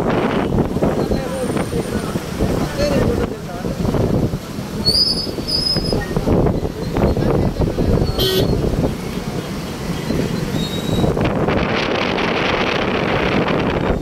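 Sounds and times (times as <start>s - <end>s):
cars driving past: 0.0s - 14.0s
wind buffeting microphone: 0.0s - 14.0s
short horn beep: 8.2s - 8.6s.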